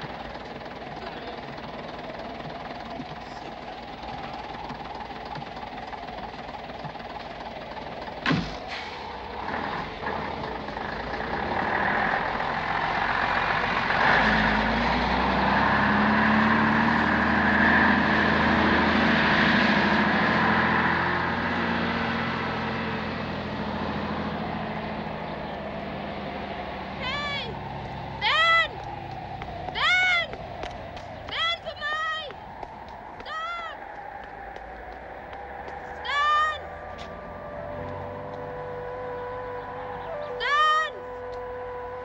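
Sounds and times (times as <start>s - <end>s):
bus engine: 0.0s - 42.0s
sharp clunks: 8.2s - 9.0s.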